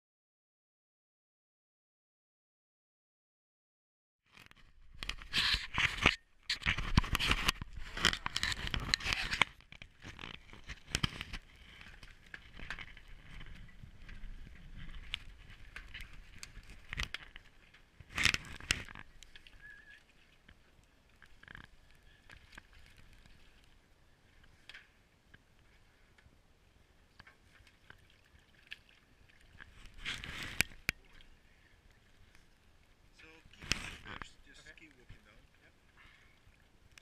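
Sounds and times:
camera handling scraping and rustling: 4.4 - 13.8, 18.0 - 19.6, 29.7 - 30.9, 33.6 - 34.3.

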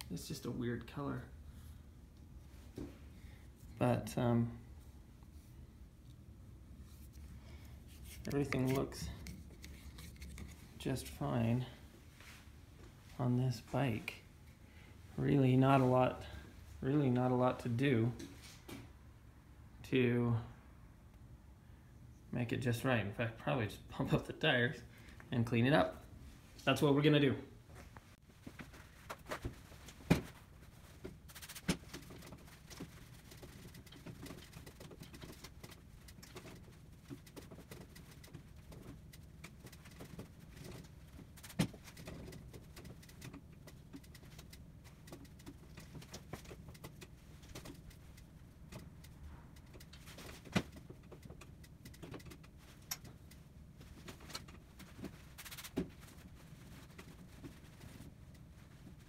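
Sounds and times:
faint low hum: 0.0 - 59.0
clicks and knocks of handling: 28.4 - 59.0.

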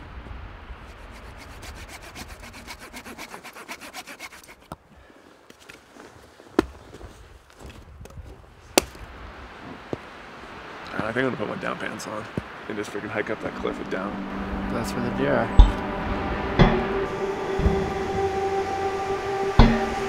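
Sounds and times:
hand saw cutting wood: 0.9 - 4.8.

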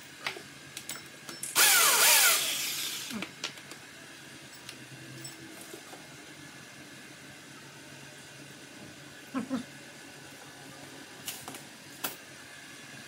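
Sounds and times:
power drill winding down: 1.6 - 3.2.

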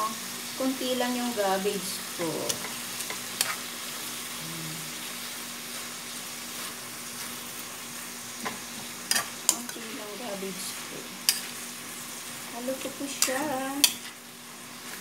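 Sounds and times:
food sizzling in a wok: 0.0 - 15.0.

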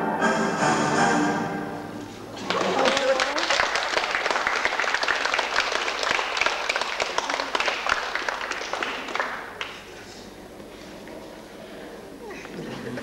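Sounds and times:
audience applauding: 2.3 - 9.9.

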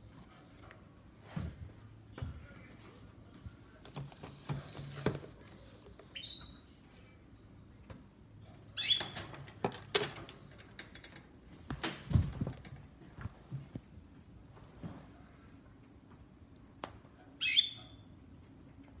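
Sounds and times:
canary chirping: 6.1 - 6.8, 8.7 - 9.2, 17.4 - 18.0.

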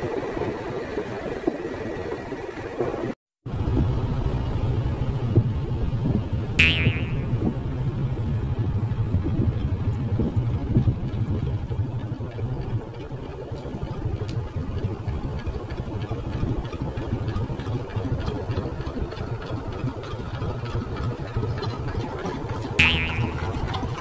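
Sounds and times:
small engine humming: 10.3 - 24.0.

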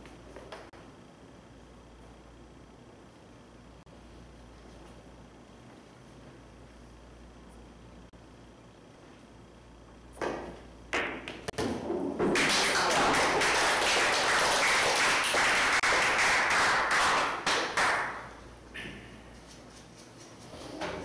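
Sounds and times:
pool balls clacking: 10.2 - 13.6.

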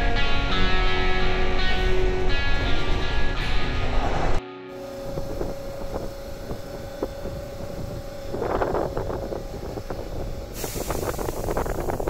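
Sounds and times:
electric train humming: 0.0 - 12.0
hiss: 6.1 - 12.0.

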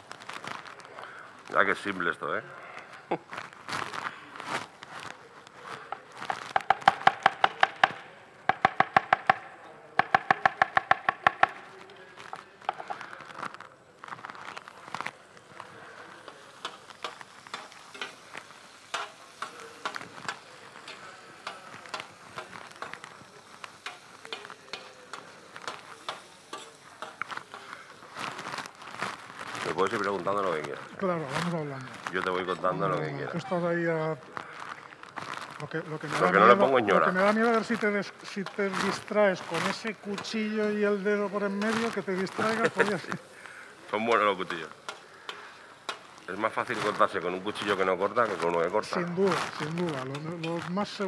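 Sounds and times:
onion sizzling in oil: 3.3 - 8.9, 10.0 - 51.0
utensil clicking against pan: 16.6 - 23.0, 23.8 - 27.7, 44.1 - 46.2.

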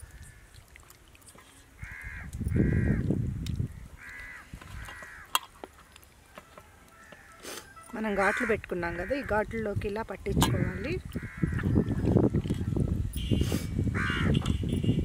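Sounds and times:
crow cawing: 1.8 - 3.0, 4.0 - 5.4, 6.9 - 9.4, 10.6 - 11.9, 14.0 - 14.4.

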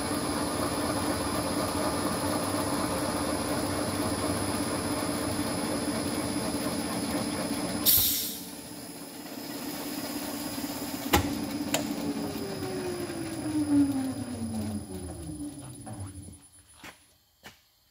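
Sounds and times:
machine spindle humming: 0.2 - 16.5
short loud hiss: 7.8 - 8.5.

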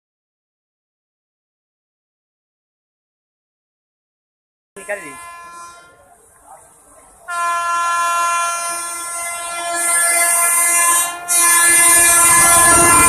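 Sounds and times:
locomotive horn blast: 4.8 - 6.1, 7.3 - 13.0
train rumbling past: 7.0 - 13.0.

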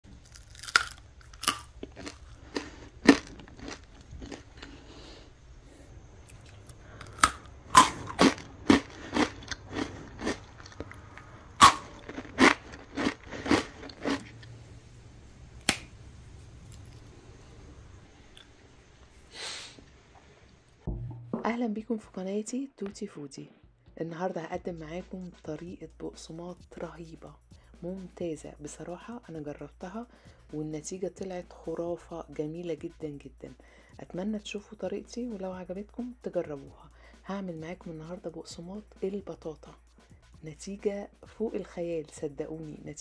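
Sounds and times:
crunching rusk sticks: 0.1 - 5.2, 6.2 - 14.5, 15.6 - 15.9.

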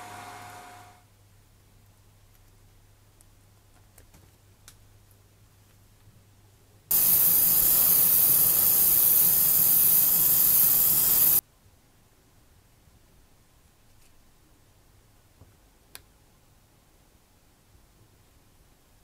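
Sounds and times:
pressurised air hissing from nozzle: 6.9 - 11.4.

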